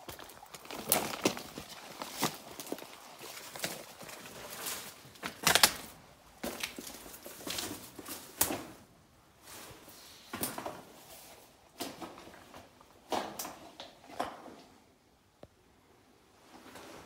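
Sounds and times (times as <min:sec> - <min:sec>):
footsteps on wet rocky floor: 0:00.0 - 0:05.4.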